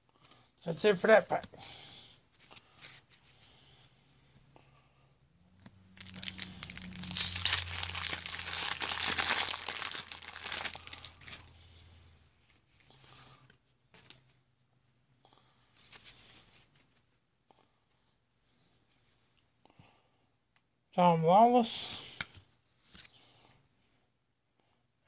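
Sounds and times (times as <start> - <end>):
paper wrapper crinkling: 6.0 - 11.5.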